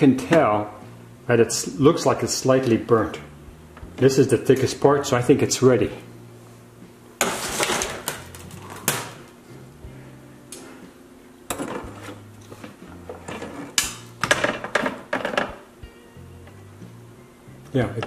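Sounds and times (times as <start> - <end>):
faint background music: 0.0 - 18.0
metal trays clattering and scraping: 7.2 - 9.2, 11.5 - 15.6.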